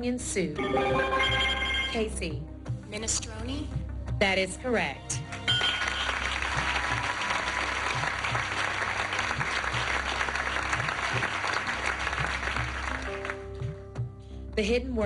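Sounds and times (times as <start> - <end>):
audience applauding: 5.5 - 13.7.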